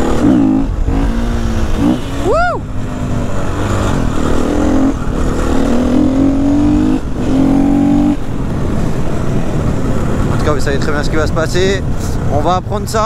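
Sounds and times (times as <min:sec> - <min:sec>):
dirt bike engine accelerating: 0:00.0 - 0:11.1.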